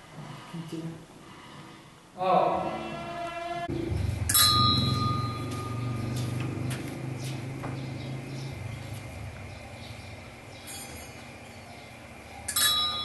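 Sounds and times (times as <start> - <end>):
low steady drone: 3.7 - 10.4
metallic bell-like strike: 4.2 - 6.1.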